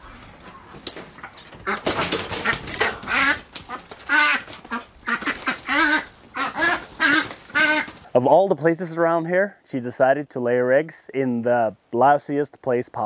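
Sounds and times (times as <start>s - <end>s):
duck quacking loudly: 2.5s - 8.0s.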